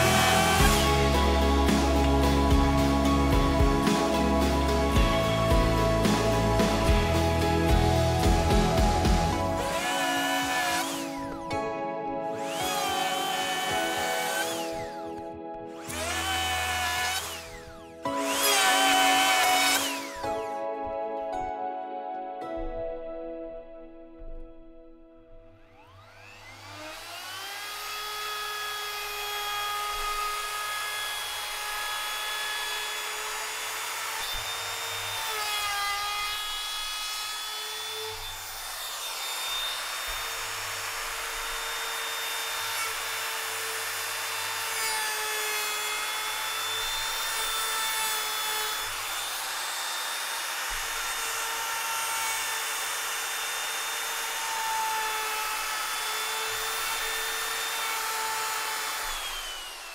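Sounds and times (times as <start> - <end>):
power tool whining on wood: 0.0 - 20.7, 25.5 - 59.9.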